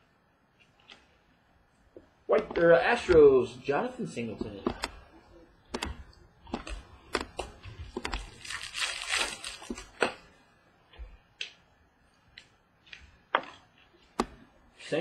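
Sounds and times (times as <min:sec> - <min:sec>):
cards clicking: 0:05.7 - 0:10.2
papery rustle of cards: 0:06.6 - 0:10.1.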